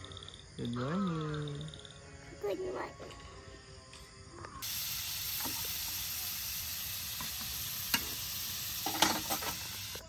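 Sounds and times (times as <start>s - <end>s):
food sizzling in a frying pan: 4.6s - 10.0s.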